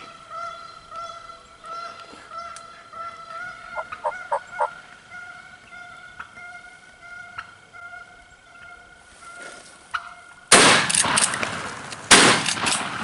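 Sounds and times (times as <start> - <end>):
shotgun blasts echoing: 10.5 - 13.0.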